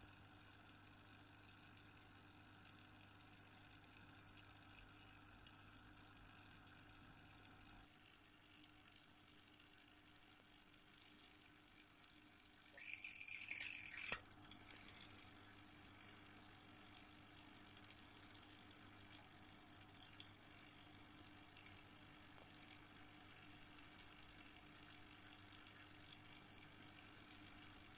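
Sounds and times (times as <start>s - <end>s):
faint steady hum: 0.0s - 27.9s.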